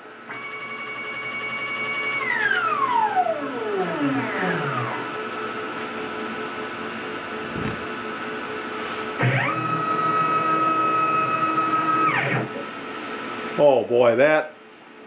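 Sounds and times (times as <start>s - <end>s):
router spindle whining: 0.3s - 5.6s, 7.4s - 8.2s, 9.0s - 12.8s
steady hum: 2.8s - 9.8s.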